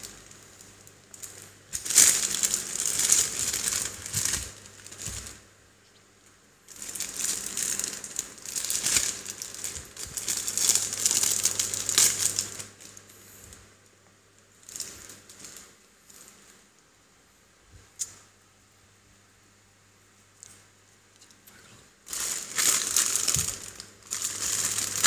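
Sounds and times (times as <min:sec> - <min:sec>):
plastic wrapping crinkling: 0:00.0 - 0:05.4, 0:06.7 - 0:13.6, 0:14.5 - 0:16.6, 0:22.0 - 0:25.0.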